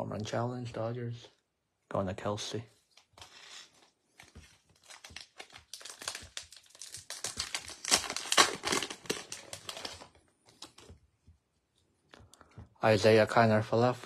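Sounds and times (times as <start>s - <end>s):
foil wrapper crinkling and tearing: 4.2s - 10.9s.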